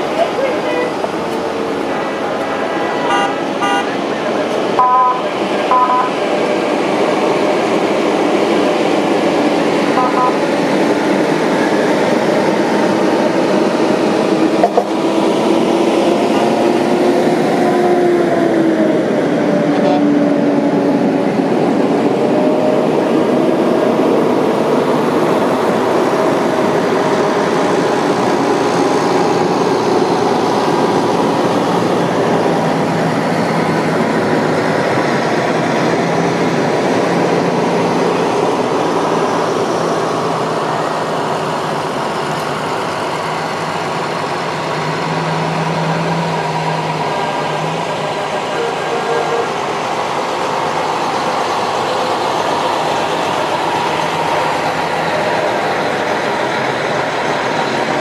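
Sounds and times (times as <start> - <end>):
engine noise: 0.0 - 58.0
sirens: 1.9 - 58.0
vehicle horns: 3.0 - 4.0, 4.8 - 6.1, 10.0 - 10.5, 48.4 - 49.7.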